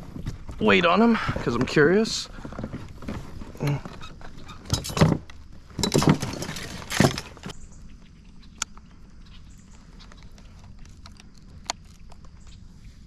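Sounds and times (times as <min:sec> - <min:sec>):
fishing gear clinking: 0:03.6 - 0:07.5.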